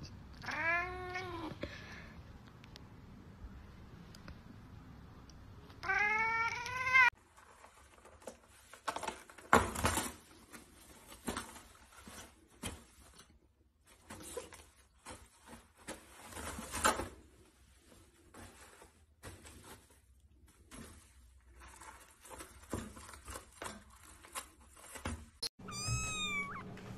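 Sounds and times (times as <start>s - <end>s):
cat meowing: 0.4s - 1.5s, 5.8s - 7.1s, 25.6s - 26.8s.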